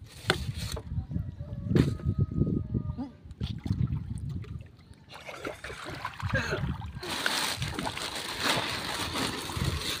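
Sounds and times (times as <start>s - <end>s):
water sloshing and splashing: 3.3s - 10.0s.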